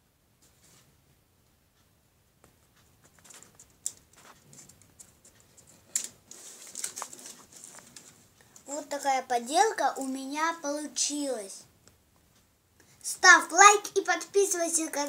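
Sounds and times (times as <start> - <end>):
dried leaves crackling: 6.3 - 8.0.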